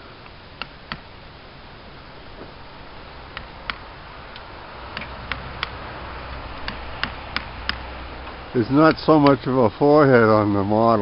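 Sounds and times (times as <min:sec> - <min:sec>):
mallet striking wood chisel: 0:03.4 - 0:03.8, 0:04.9 - 0:05.8, 0:06.6 - 0:07.8.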